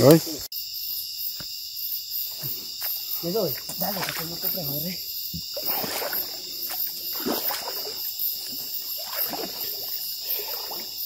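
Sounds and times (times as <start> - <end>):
night insects chirping: 0.0 - 11.0
water sloshing and splashing: 3.2 - 11.0.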